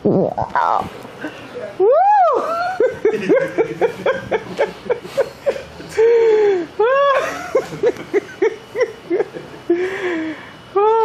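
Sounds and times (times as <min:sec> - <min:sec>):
woman crying out: 0:01.8 - 0:02.8, 0:06.8 - 0:07.5
woman laughing: 0:01.8 - 0:10.0.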